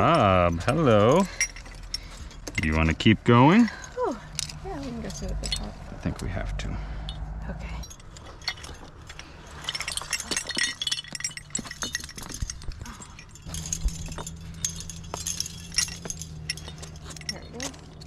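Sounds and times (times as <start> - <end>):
climbing gear clinking: 0.0 - 18.0.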